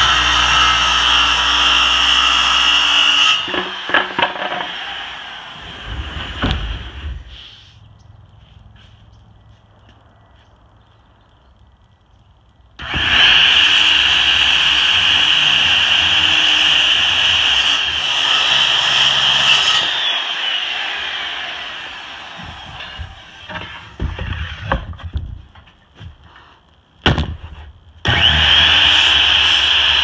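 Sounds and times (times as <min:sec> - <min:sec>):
circular saw cutting board: 0:00.0 - 0:07.7, 0:28.0 - 0:30.0
knocks of wood pieces moved: 0:22.4 - 0:27.8.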